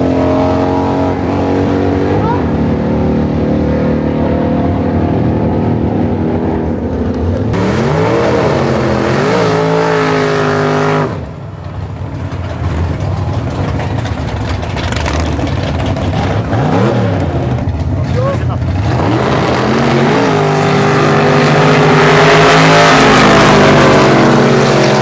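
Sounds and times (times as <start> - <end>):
drag racing car engine revving: 0.0 - 25.0.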